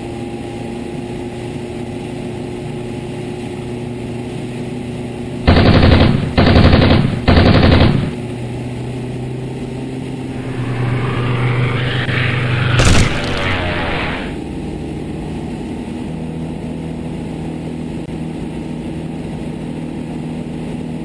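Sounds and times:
engine and propeller drone: 0.0 - 21.0
machine-gun fire: 5.5 - 8.2, 10.3 - 14.4
rising hiss: 10.2 - 14.4
sharp bang: 10.3 - 14.4.

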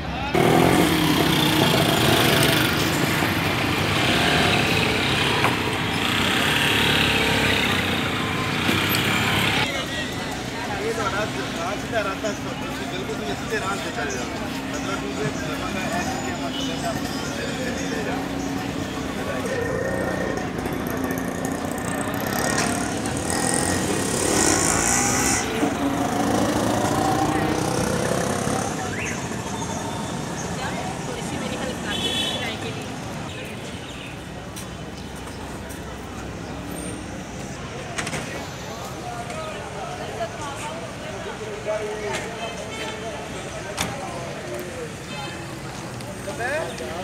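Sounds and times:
street traffic: 0.0 - 47.0
auto-rickshaw engine running: 0.3 - 32.4.

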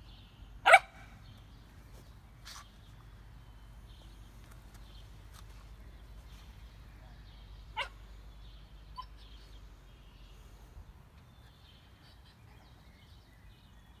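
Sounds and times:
faint bird chirps: 5.8 - 14.0.

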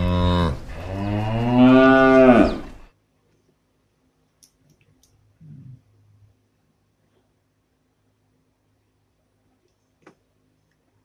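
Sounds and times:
cow mooing: 0.0 - 2.8.

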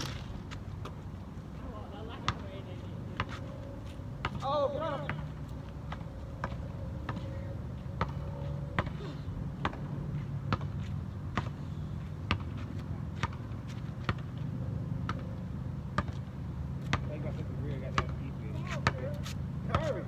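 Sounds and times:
basketball bouncing on asphalt: 0.0 - 20.0.

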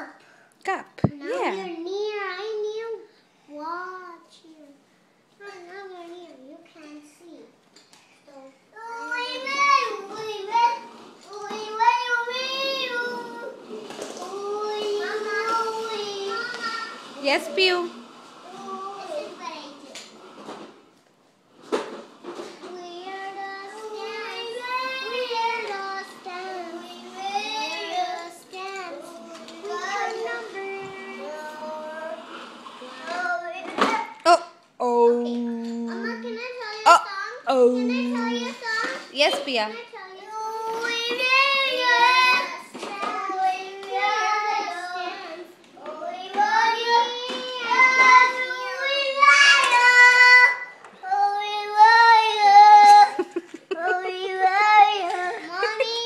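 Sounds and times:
girl singing held notes: 34.3 - 38.8.

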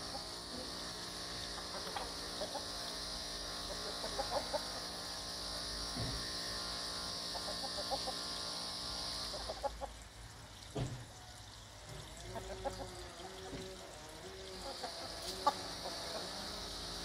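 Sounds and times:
steady high hiss: 0.0 - 9.9
hens clucking: 1.6 - 2.9, 3.6 - 4.9, 7.3 - 8.2, 9.3 - 10.0, 12.2 - 13.6, 14.5 - 16.6.

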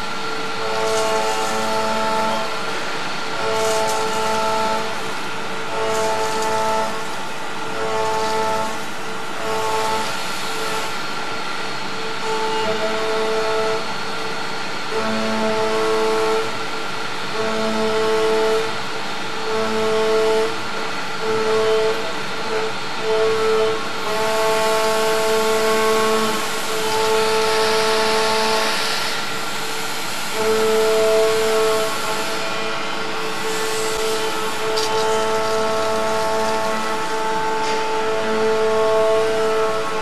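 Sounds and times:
milling machine cutting whine: 0.0 - 40.0
machine hiss and flying chips: 0.1 - 11.1, 24.2 - 40.0.

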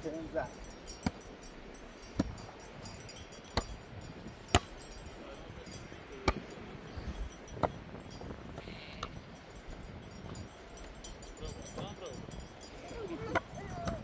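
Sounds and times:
volleyball hit by hand: 4.5 - 4.7, 6.2 - 6.5.

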